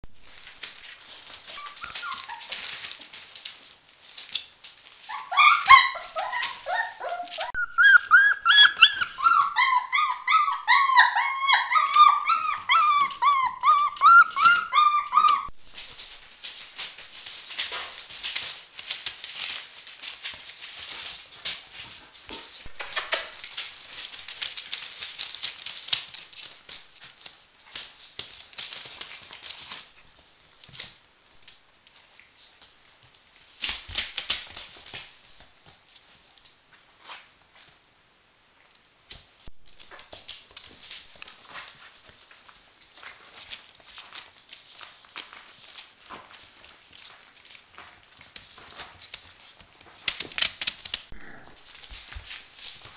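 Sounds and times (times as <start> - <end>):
paws pattering on newspaper: 0.2 - 37.8, 39.1 - 52.9
puppies whining and yelping: 1.4 - 2.7, 5.1 - 15.6.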